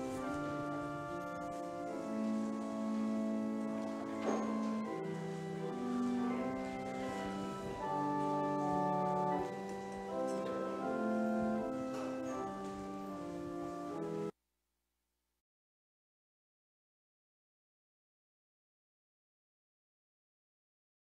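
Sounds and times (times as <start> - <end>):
organ playing slow chords: 0.0 - 14.3.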